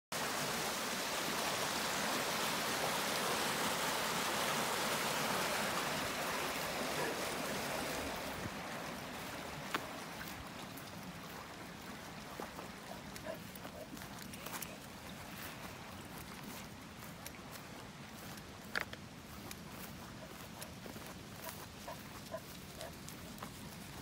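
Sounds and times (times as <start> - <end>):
water rushing down ditch: 0.1 - 24.0.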